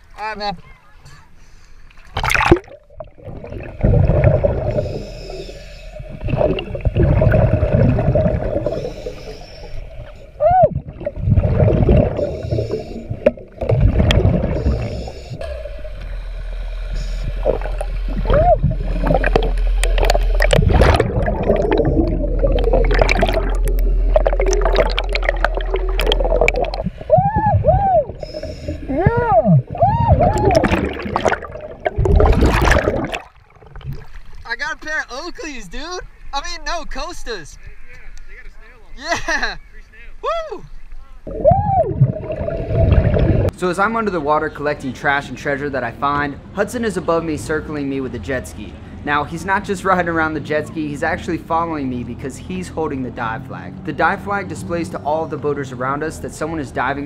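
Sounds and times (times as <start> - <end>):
boat engine hum underwater: 1.3 - 34.5, 40.6 - 43.6
bubbling exhalations: 1.9 - 15.9, 16.9 - 34.4, 41.3 - 43.6
regulator breathing hiss: 4.7 - 6.1, 8.6 - 10.4, 12.2 - 13.2, 14.6 - 17.4.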